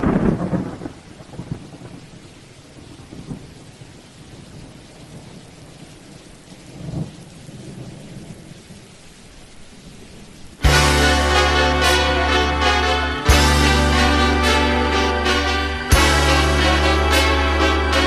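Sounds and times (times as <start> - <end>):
thunder rumbling: 0.0 - 5.6, 6.6 - 8.9
steady rain falling: 0.0 - 18.0.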